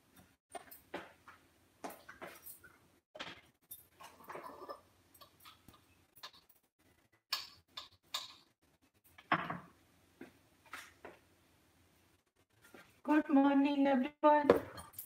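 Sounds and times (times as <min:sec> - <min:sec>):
kitchen items clicking and knocking: 0:00.1 - 0:06.7, 0:07.3 - 0:08.5.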